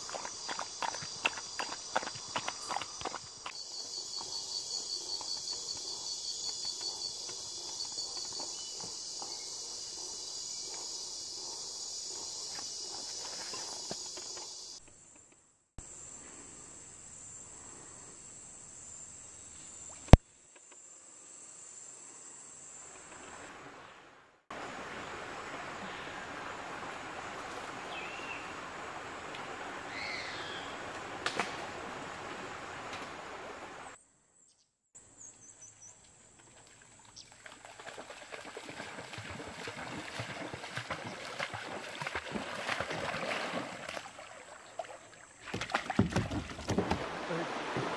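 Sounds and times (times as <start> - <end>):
river water running: 0.0 - 14.8, 22.9 - 34.0, 36.0 - 47.9
high insect drone: 0.0 - 15.2, 15.8 - 23.9
dog splashing through water: 36.4 - 47.9.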